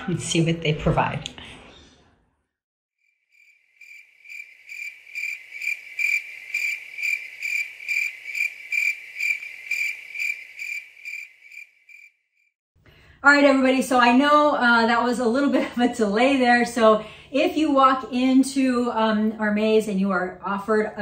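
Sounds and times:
crickets chirping: 3.0 - 12.2.

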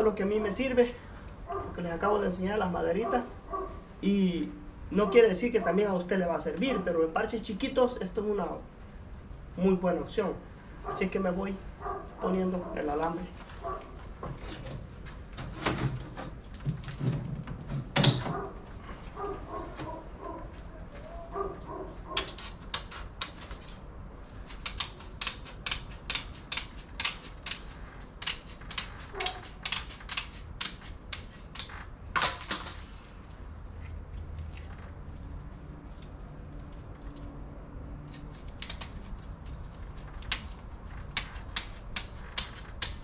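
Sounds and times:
snips cutting wire mesh: 22.1 - 23.8, 24.4 - 32.8, 38.1 - 43.0.

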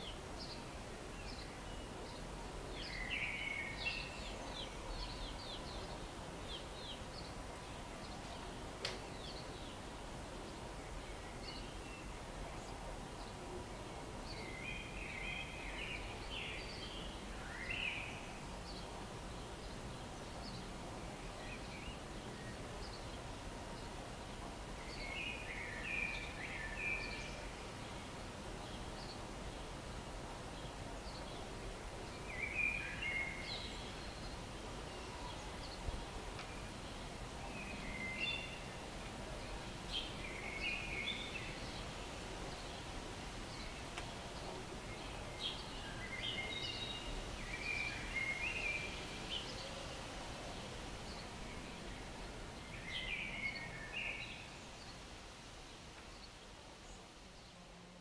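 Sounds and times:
outdoor background noise: 0.0 - 58.0
songbird chirping: 30.5 - 57.6.

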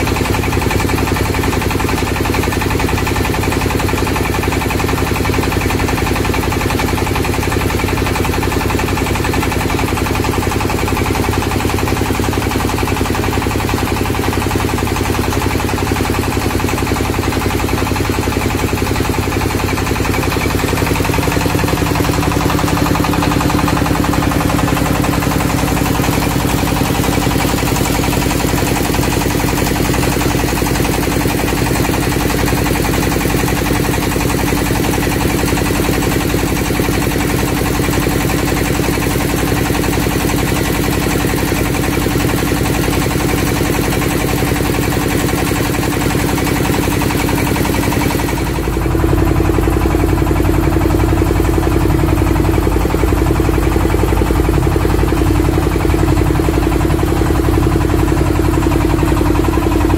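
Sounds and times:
boat engine rumble: 18.7 - 29.9, 48.0 - 59.9.

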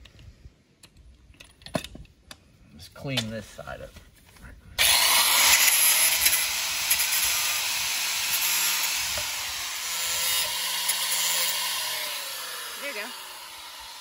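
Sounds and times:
angle grinder grinding plastic pipe: 4.8 - 14.0.

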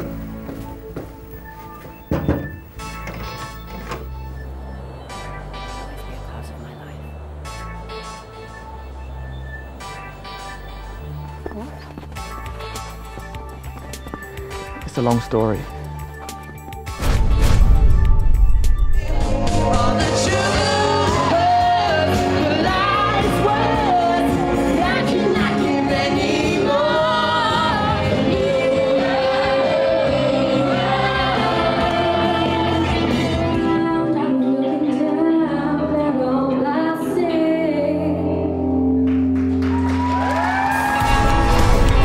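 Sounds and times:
backing music: 0.0 - 42.0
group of young singers: 19.6 - 38.1
person singing into microphone: 19.6 - 38.7.

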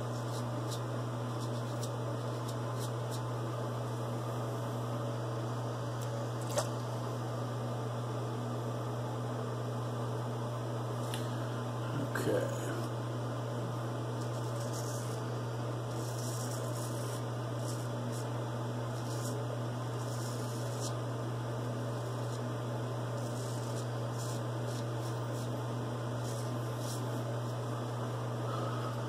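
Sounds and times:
razor scraping stubble: 0.0 - 3.3, 14.1 - 21.0, 21.8 - 27.6
steady low hum: 0.0 - 29.0.

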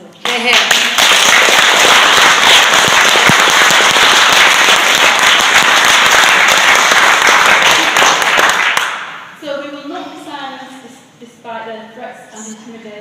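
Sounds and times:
audience applauding: 0.3 - 9.1.

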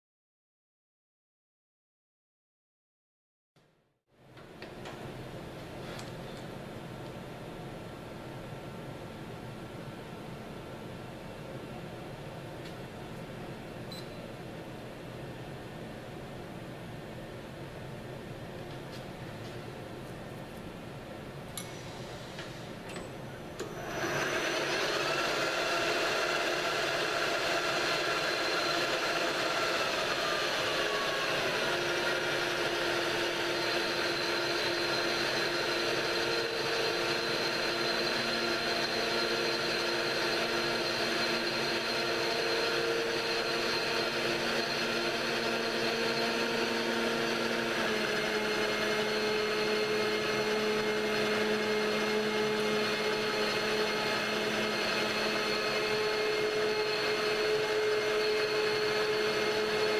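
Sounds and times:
metal lathe whining: 23.6 - 59.9.

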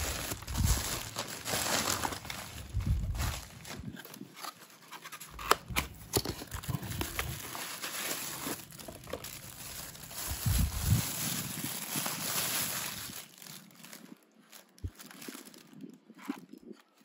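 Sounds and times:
cardboard box being opened: 0.0 - 9.5
plastic wrapping crinkling: 0.0 - 17.0.

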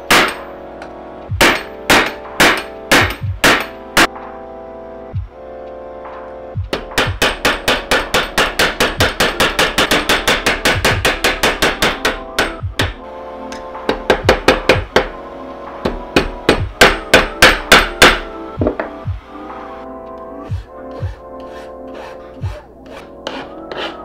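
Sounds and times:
hammer striking steel: 0.0 - 0.5, 1.4 - 4.2, 6.7 - 15.2, 15.8 - 19.0.

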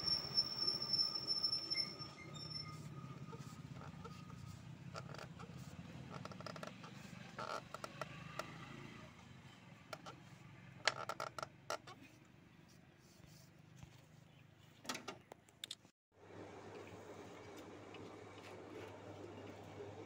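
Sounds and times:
oil filter wrench creaking: 4.9 - 8.6, 10.8 - 12.0.

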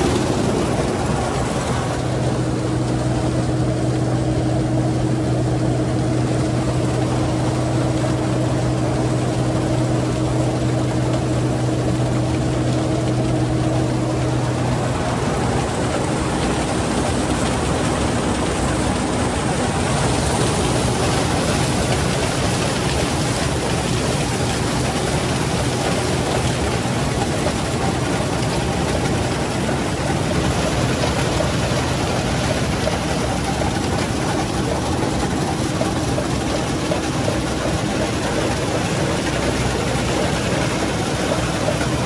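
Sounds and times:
combine harvester running: 0.0 - 42.0.

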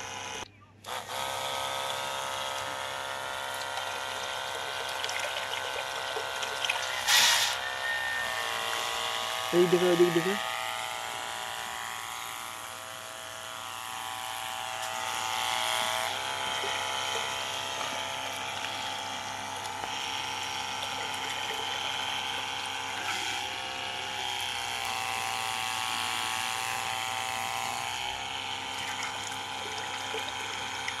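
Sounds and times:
water pump whining: 0.0 - 31.0
water splashing into metal basin: 4.9 - 6.9.

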